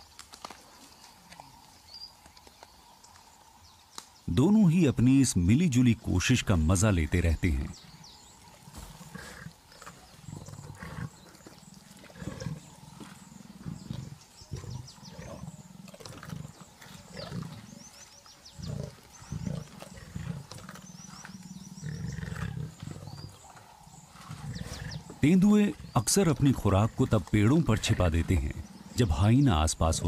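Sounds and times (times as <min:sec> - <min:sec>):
leopard growling: 0:07.4 - 0:30.0.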